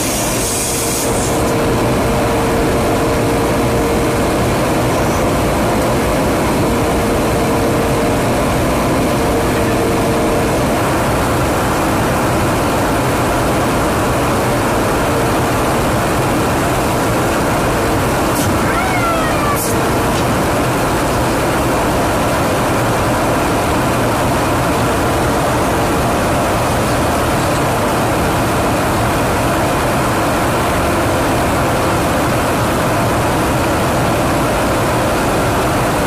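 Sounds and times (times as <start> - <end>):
aircraft engines droning in flight: 0.0 - 36.0
steady hum: 0.0 - 36.0.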